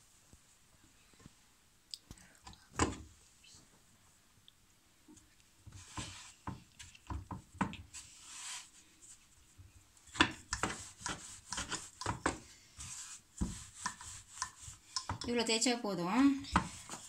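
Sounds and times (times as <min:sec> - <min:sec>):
rolling pin on wooden board: 0:05.7 - 0:08.6, 0:10.1 - 0:15.4, 0:16.5 - 0:17.0
hands pressing dough: 0:10.0 - 0:15.4
wood knocking and rubbing: 0:13.4 - 0:15.3.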